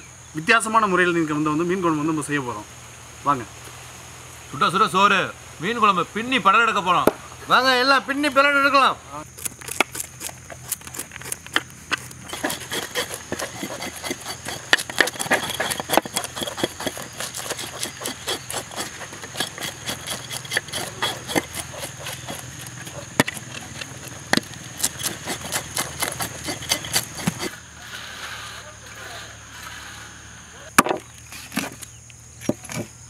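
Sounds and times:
knives scraping fish scales: 9.4s - 27.6s.

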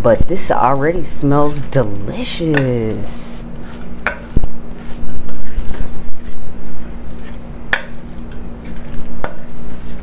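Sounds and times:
steady low hum: 0.0s - 10.0s
wooden spoon stirring thick mix: 0.0s - 10.0s.

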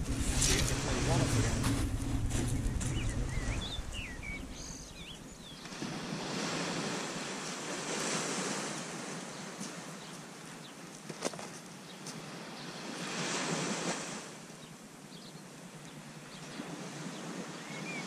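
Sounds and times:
bird calling: 0.0s - 5.8s
wind noise on microphone: 0.0s - 7.3s
small waves breaking on beach: 4.9s - 18.0s.

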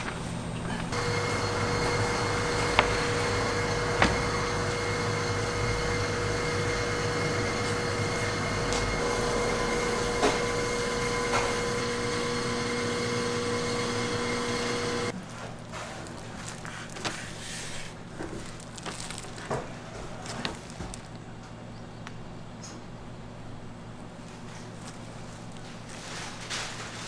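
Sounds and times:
machine motor whining: 0.0s - 15.2s.

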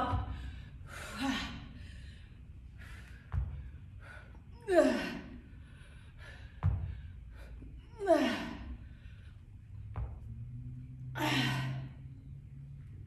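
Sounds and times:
dull low thump: 3.3s - 3.7s, 6.5s - 7.1s.

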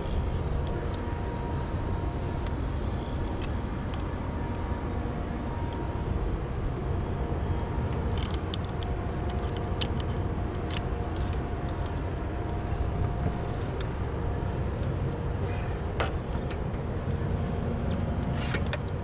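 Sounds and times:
wind rumble on microphone: 0.0s - 19.0s
metallic carabiner clinks: 7.9s - 15.2s.

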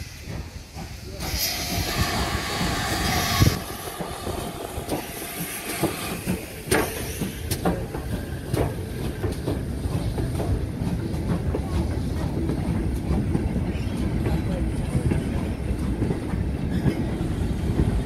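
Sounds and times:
steam hissing: 0.0s - 11.1s
train rumbling: 0.0s - 18.0s.

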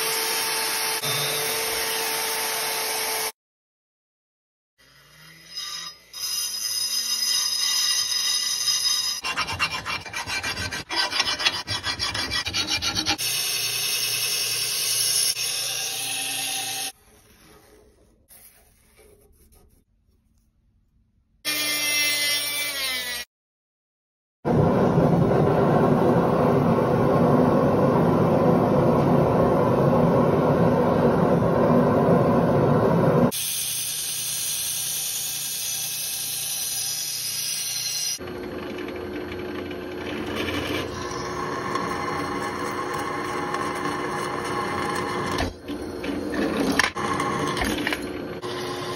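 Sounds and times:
belt grinder grinding steel: 4.8s - 17.0s
sawing and rasping on steel: 4.8s - 19.9s.

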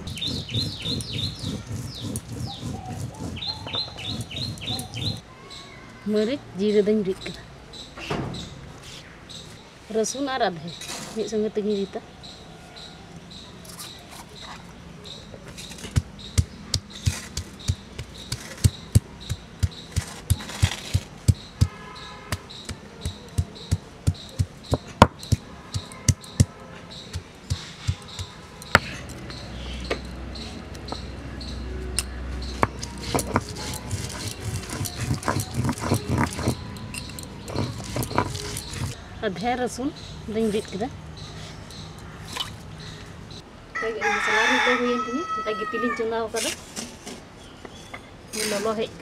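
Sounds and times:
grinding stone knocking on slab: 0.0s - 5.2s, 15.7s - 21.8s, 32.4s - 39.0s
stone rolling and grinding on slab: 0.0s - 5.2s, 15.5s - 21.6s, 32.4s - 39.0s.

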